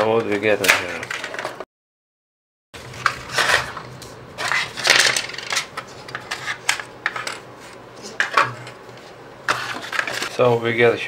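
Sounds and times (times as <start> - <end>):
cardboard and plastic rustling: 2.8 - 10.4.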